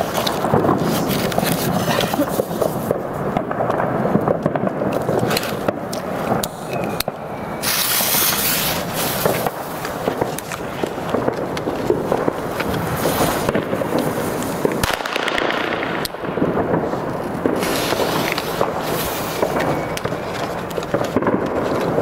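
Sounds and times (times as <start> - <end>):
rustling handling noise: 0.0 - 2.9
firecracker fuse hissing: 0.0 - 22.0.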